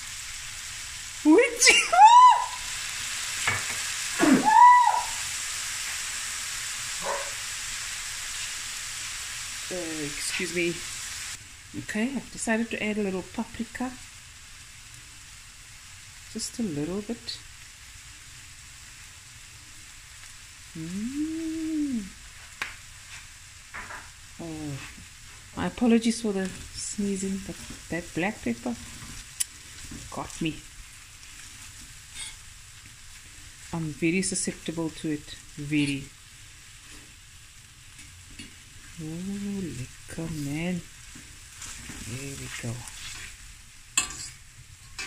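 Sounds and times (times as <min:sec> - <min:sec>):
chicken sizzling in frying pan: 0:00.0 - 0:45.0
woman sneezing: 0:04.2 - 0:04.9.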